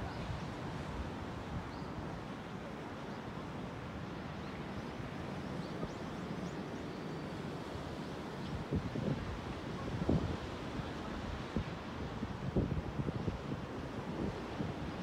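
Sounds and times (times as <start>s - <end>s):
small waves breaking on beach: 0.0s - 15.0s
wind rumbling on microphone: 8.3s - 15.0s.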